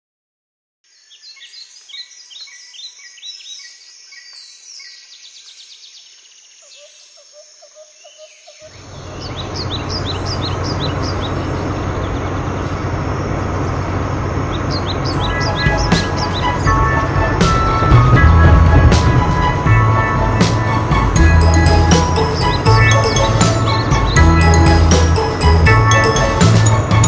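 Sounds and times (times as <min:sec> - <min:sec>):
birds chirping: 0:00.9 - 0:27.0
off-road buggy engine rumble: 0:08.7 - 0:27.0.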